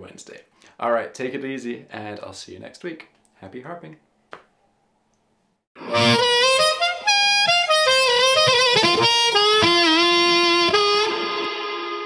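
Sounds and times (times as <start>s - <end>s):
harmonica riff with bent notes: 5.8s - 12.0s.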